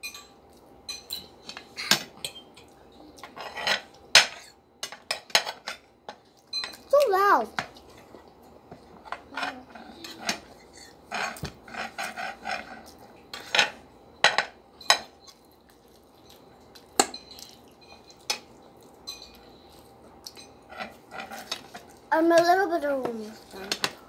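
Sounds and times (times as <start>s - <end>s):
cutlery clinking on ceramic plates: 0.0s - 5.9s, 13.3s - 15.3s, 17.0s - 19.4s.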